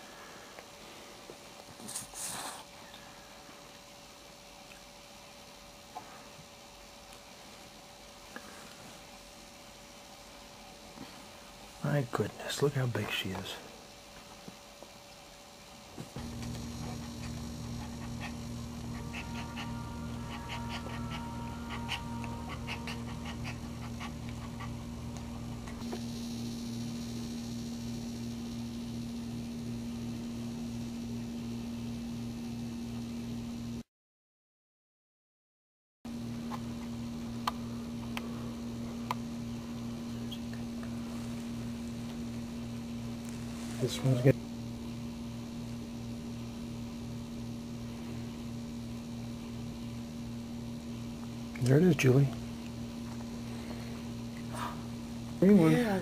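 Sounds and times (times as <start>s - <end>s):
steady low hum: 0.0s - 33.8s, 36.1s - 56.0s
faint low throb pulsing: 16.2s - 32.2s.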